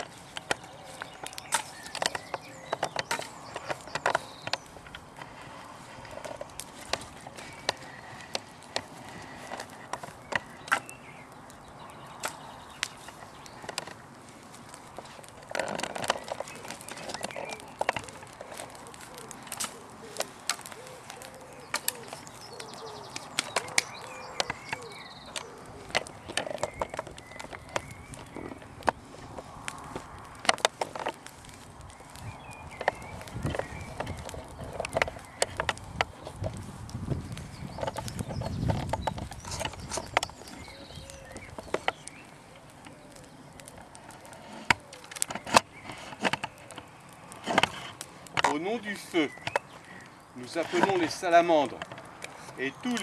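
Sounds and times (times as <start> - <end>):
wood fire crackling and popping: 0.0 - 53.0
bird cooing: 0.6 - 1.2, 17.2 - 26.8, 40.6 - 45.9.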